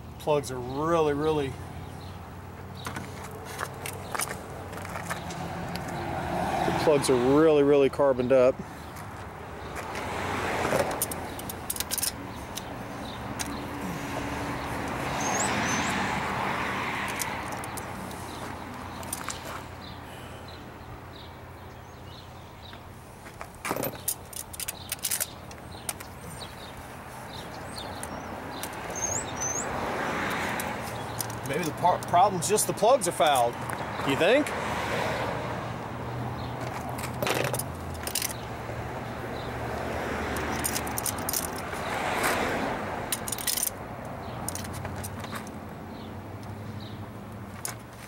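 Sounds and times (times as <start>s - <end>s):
metal hand tools clinking: 40.4s - 41.7s, 43.1s - 43.8s.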